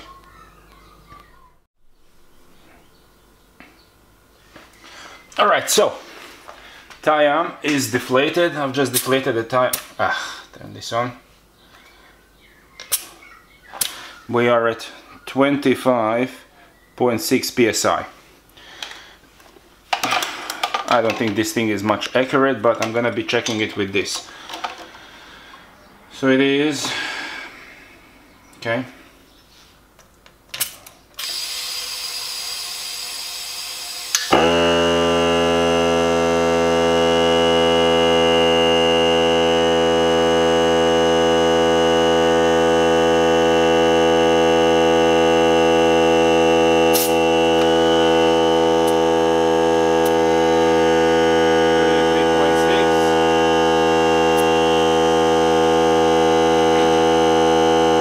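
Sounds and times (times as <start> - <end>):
compressor motor humming: 31.2 - 58.0.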